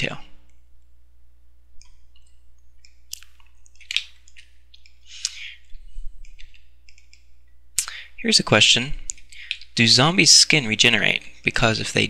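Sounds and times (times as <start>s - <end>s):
wet mouth smacks: 1.8s - 5.4s
breaths: 5.0s - 6.0s, 7.8s - 8.2s, 9.3s - 9.7s.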